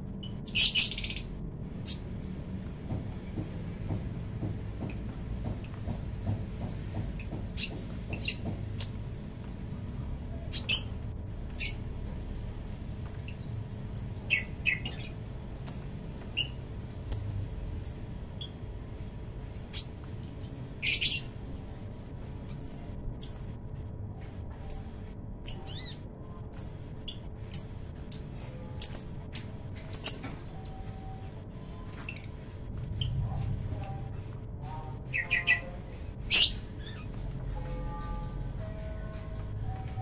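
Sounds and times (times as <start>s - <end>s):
bird chirping high-pitched: 0.2s - 2.4s, 10.5s - 11.9s, 13.3s - 15.1s, 24.7s - 31.0s, 35.1s - 37.1s.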